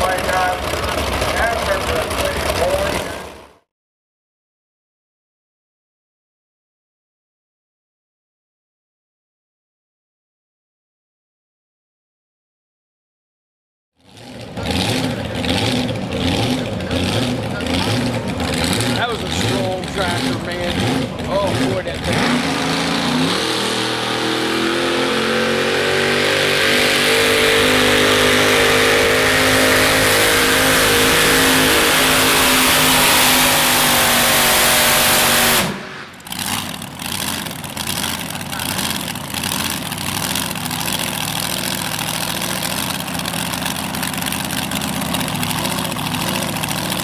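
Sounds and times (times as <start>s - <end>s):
tractor engine at full throttle: 0.0s - 3.6s, 14.0s - 47.0s.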